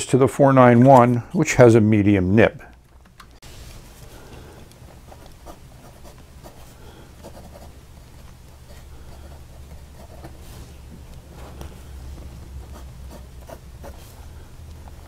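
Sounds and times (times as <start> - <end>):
steady low hum: 0.0 - 15.0
fountain pen scratching on paper: 5.0 - 10.9, 11.5 - 14.2.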